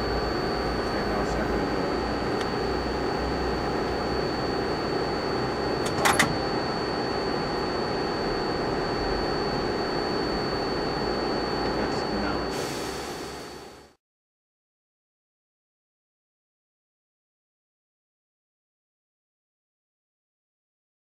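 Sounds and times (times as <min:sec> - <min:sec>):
lathe machine hum: 0:00.0 - 0:14.0.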